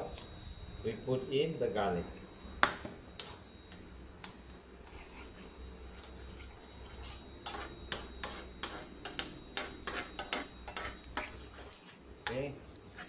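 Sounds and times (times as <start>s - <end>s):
thin high whine: 0.0s - 13.0s
utensil scraping frying pan: 4.8s - 13.0s.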